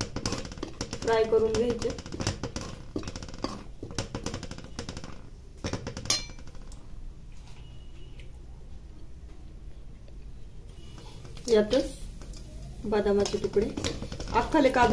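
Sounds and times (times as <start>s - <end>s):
nuts frying in fat: 0.0s - 6.0s, 10.7s - 14.9s.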